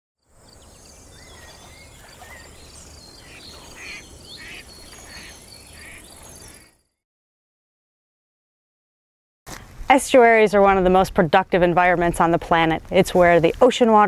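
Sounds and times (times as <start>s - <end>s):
bird chirps and glides: 0.4s - 7.0s.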